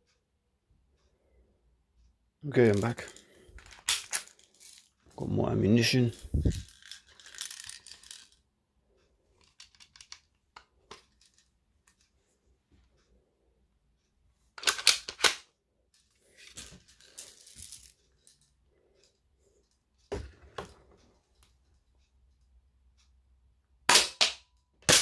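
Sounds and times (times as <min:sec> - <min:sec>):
plastic toy shotgun clicks and rattles: 0:02.6 - 0:05.1, 0:06.2 - 0:08.4, 0:09.4 - 0:12.0, 0:14.6 - 0:15.5, 0:23.9 - 0:25.0.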